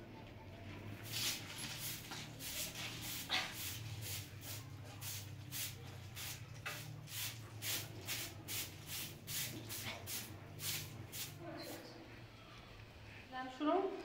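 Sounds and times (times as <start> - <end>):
hand broom sweeping concrete: 1.0 - 11.8.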